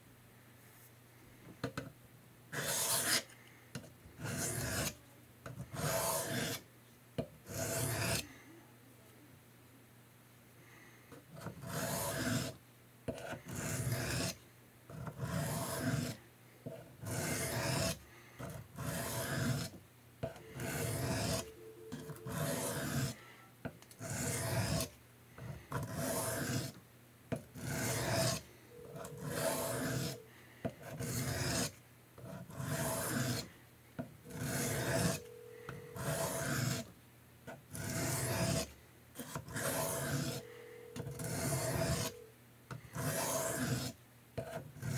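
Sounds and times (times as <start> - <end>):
knife blade rasping on sharpening stone: 2.6 - 3.2, 5.8 - 6.6, 7.5 - 8.2, 11.6 - 12.5, 17.1 - 17.9, 18.8 - 19.7, 20.4 - 23.2, 25.8 - 26.7, 27.6 - 30.3, 32.6 - 33.4, 34.3 - 36.8, 37.8 - 42.3, 43.0 - 43.9.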